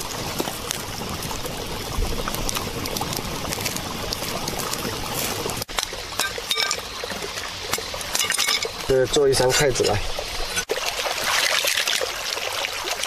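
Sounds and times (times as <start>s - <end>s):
light crackles: 0.0s - 9.2s
mountain stream flowing: 0.0s - 13.0s.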